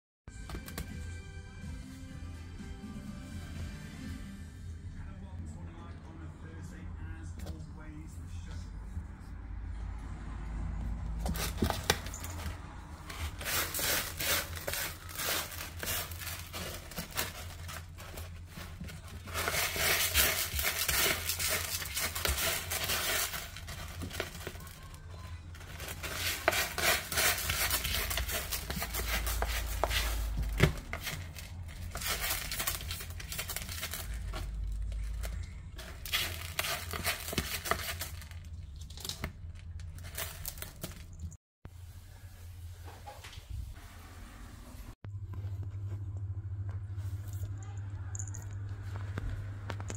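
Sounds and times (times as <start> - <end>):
cat scratching in litter tray: 11.0 - 25.0, 25.6 - 41.0.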